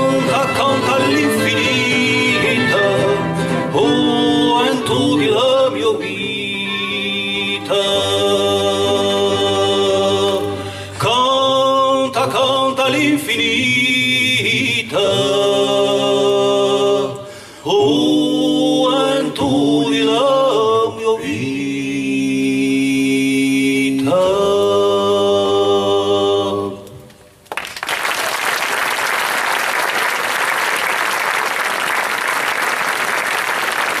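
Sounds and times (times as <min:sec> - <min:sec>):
male voices singing in harmony: 0:00.0 - 0:27.0
audience applause: 0:27.5 - 0:34.0.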